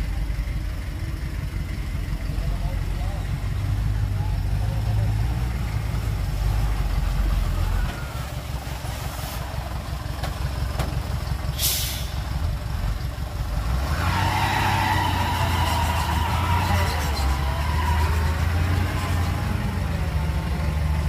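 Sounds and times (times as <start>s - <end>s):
diesel truck engine rumbling: 0.0s - 21.0s
air brake hiss: 11.5s - 12.3s.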